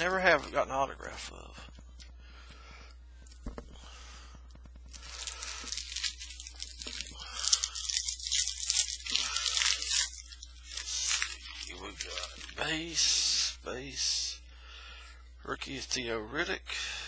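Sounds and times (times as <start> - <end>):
wrapper tearing and crinkling: 4.9 - 13.2.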